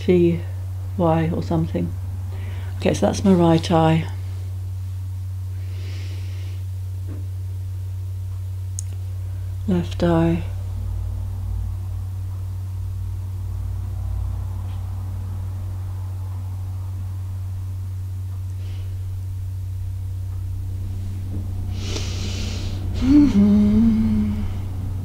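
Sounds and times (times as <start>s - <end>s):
steady low hum: 0.0s - 25.0s
person drawing breath: 5.6s - 6.7s, 21.7s - 24.4s
person humming: 21.8s - 24.9s.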